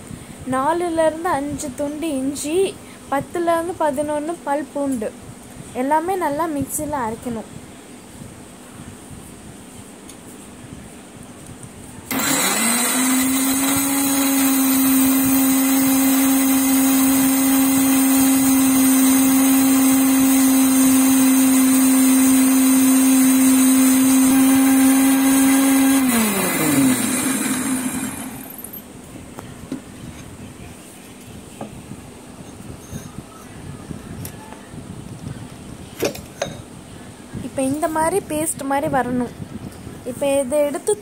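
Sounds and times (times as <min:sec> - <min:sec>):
mixer grinder motor running: 0:12.1 - 0:28.7.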